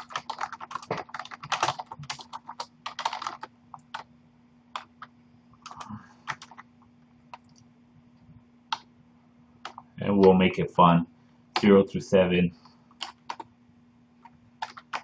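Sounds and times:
keyboard typing: 0.0 - 4.1, 4.7 - 6.7, 9.6 - 10.4, 12.9 - 13.5, 14.2 - 15.0
faint steady hum: 0.0 - 15.0.

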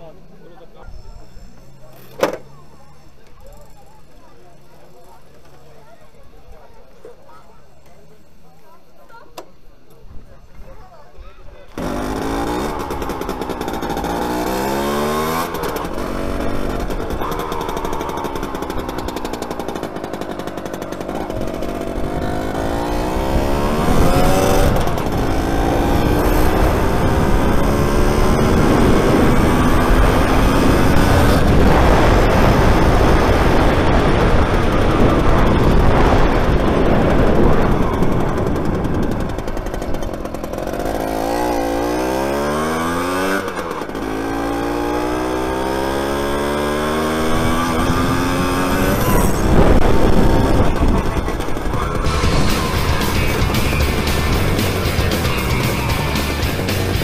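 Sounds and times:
two-stroke motorcycle engine revving: 11.7 - 57.0
wind noise on microphone: 15.6 - 41.7, 47.0 - 55.0.

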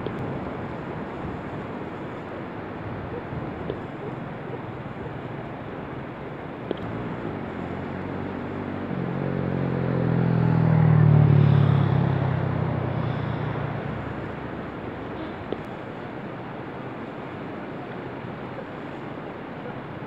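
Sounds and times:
vehicle engine passing by: 6.8 - 15.6
river rushing over rocks: 11.5 - 20.0.

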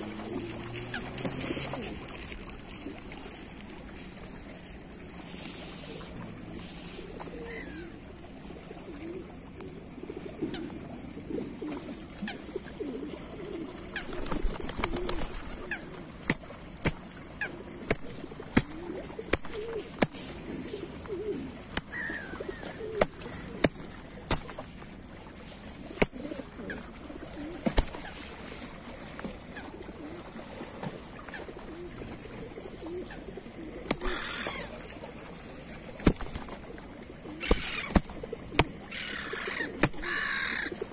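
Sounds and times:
pigeon cooing: 0.0 - 2.2, 5.3 - 24.5, 25.8 - 28.7, 31.2 - 40.9
wing slapping a hand: 16.2 - 17.0, 17.9 - 20.3, 21.7 - 21.9, 22.9 - 24.7, 26.0 - 26.2, 27.6 - 28.0, 33.9 - 34.2, 36.0 - 36.6, 37.5 - 38.8, 39.8 - 40.1.

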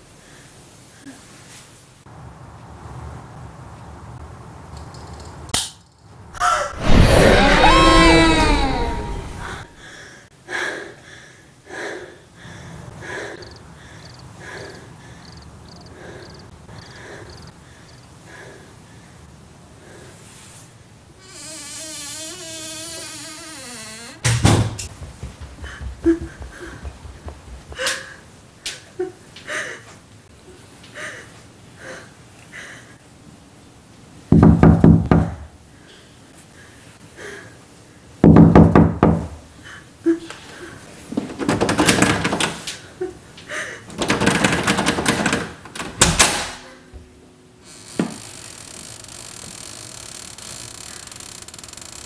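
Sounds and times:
faint knocks: 24.2 - 28.2
loud rapid knocking: 24.3 - 28.2.

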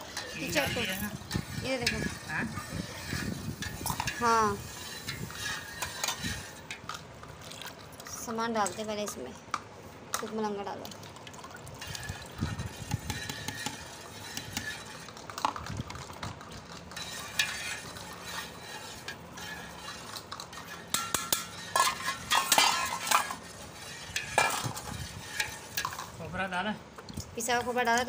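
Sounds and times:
knife scraping and clinking in a pot: 0.0 - 7.1, 11.8 - 15.6, 16.2 - 26.2.

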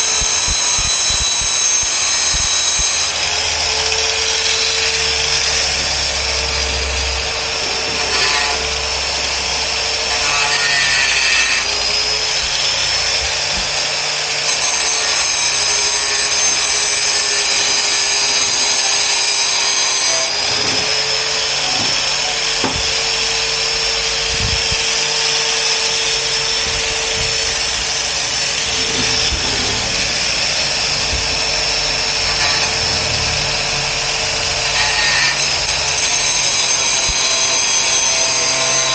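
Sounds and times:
angle grinder grinding: 0.0 - 38.9.

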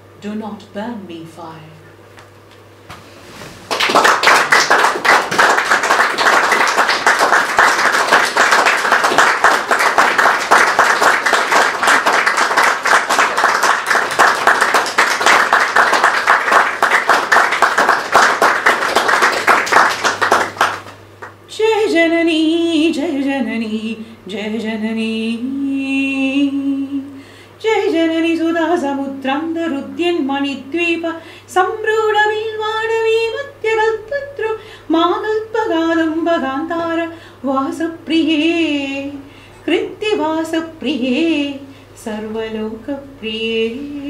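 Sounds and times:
audience applauding: 3.7 - 21.4
woman singing unaccompanied: 21.5 - 44.0.

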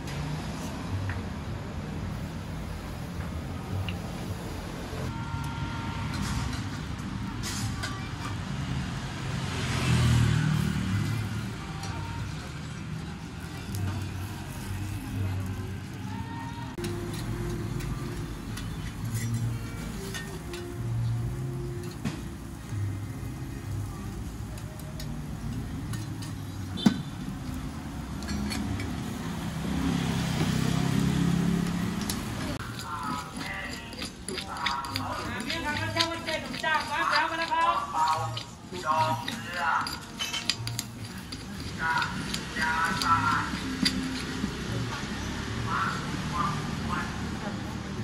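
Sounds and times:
road traffic rumbling: 0.0 - 48.0
vehicle passing close by: 8.6 - 11.8, 27.7 - 33.2
metal scoop scraping ash: 16.7 - 22.6, 24.8 - 26.8, 30.9 - 45.4.

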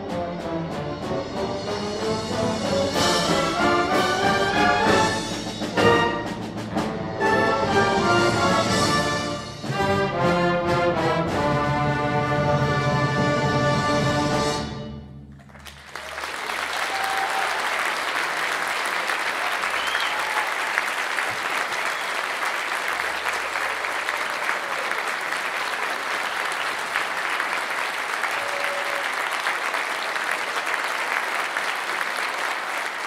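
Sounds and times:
audience applause: 15.3 - 33.0.

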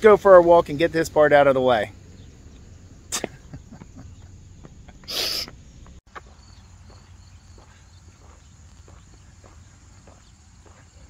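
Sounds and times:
footsteps on paved path: 3.9 - 11.0.

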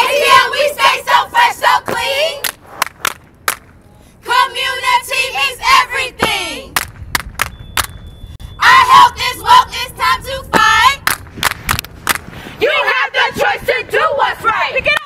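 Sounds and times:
women chanting together: 0.0 - 2.4, 4.2 - 6.7, 8.6 - 11.0
hand claps: 2.4 - 3.7, 6.8 - 8.0.

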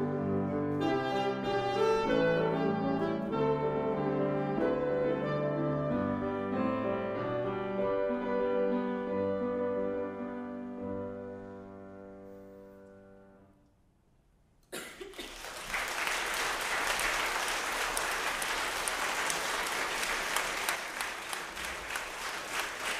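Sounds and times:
saxophone and piano chord: 0.0 - 13.5
audience applause: 14.8 - 22.9.

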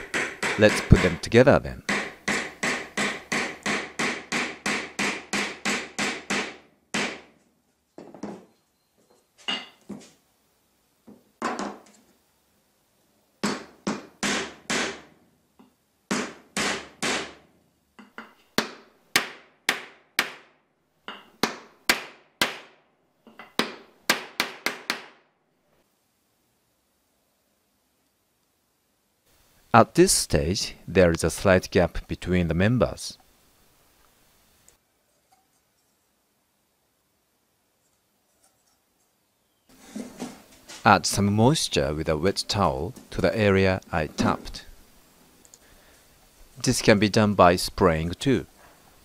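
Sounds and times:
hammer tapping wooden joint: 0.0 - 1.2, 1.9 - 7.2.

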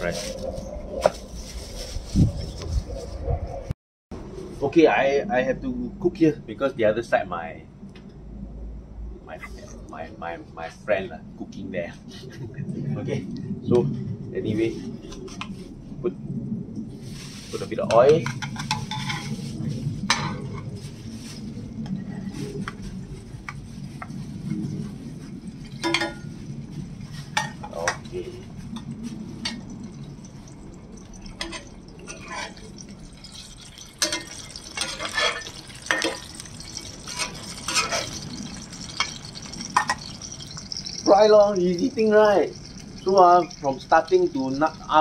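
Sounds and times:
patties frying in oil: 16.9 - 45.0.

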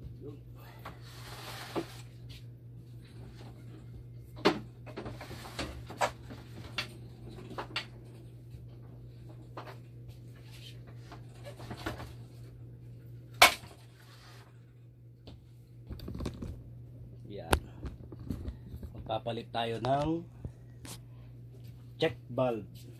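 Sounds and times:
steady low hum: 0.0 - 22.9.

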